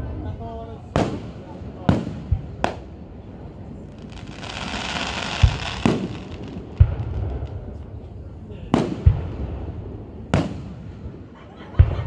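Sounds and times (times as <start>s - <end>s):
deep firework booms: 0.9s - 2.9s, 3.7s - 11.2s
firework bangs: 0.9s - 2.9s, 3.9s - 8.1s, 8.7s - 11.2s
firework crackles: 0.9s - 11.2s
firework hiss: 3.8s - 7.8s.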